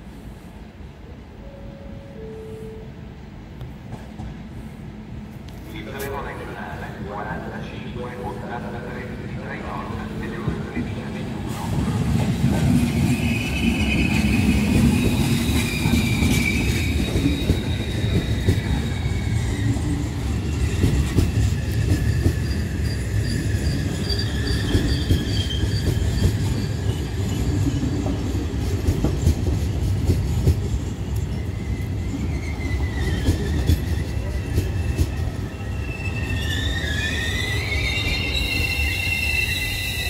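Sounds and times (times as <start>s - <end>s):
train wheels rumbling on rails: 3.5s - 40.0s
wheels and brakes squealing: 12.6s - 28.5s, 30.7s - 40.0s.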